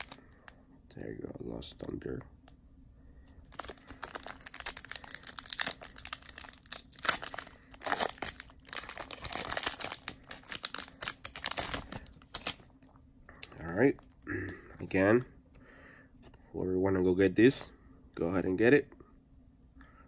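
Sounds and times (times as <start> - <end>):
foil wrapper crinkling and tearing: 0.0 - 0.3, 3.5 - 12.7.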